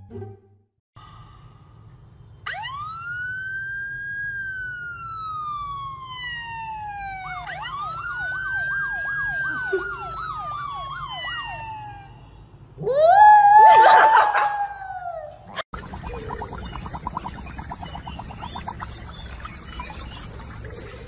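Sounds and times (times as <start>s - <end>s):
police siren on phone speaker: 2.5s - 12.2s.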